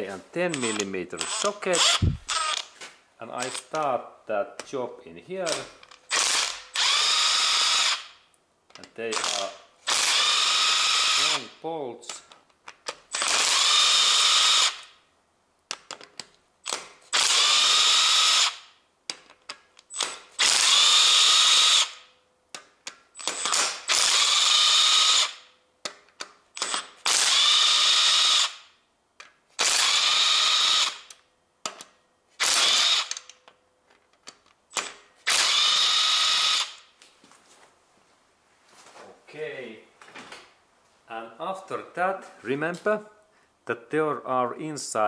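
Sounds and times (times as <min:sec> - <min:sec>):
cordless power driver whirring: 0:00.5 - 0:02.7, 0:06.1 - 0:08.1, 0:09.2 - 0:11.4, 0:13.1 - 0:14.9, 0:17.1 - 0:18.7, 0:19.9 - 0:22.0, 0:23.2 - 0:25.4, 0:26.6 - 0:28.6, 0:29.6 - 0:31.1, 0:32.4 - 0:33.3, 0:35.2 - 0:36.8.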